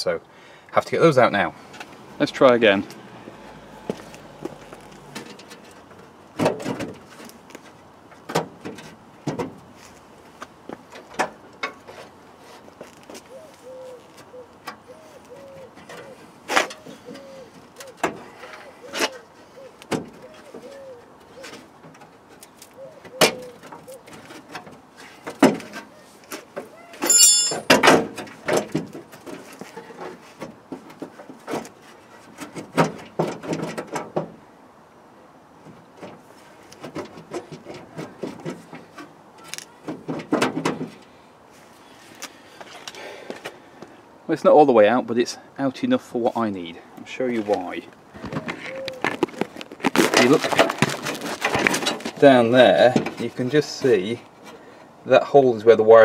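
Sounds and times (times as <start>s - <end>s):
small squeaks: 25.8s - 27.7s
knocks and scrapes of hand work: 36.8s - 39.2s.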